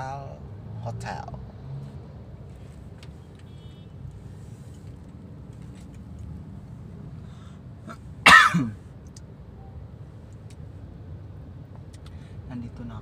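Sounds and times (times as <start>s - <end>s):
person coughing: 8.3s - 8.8s.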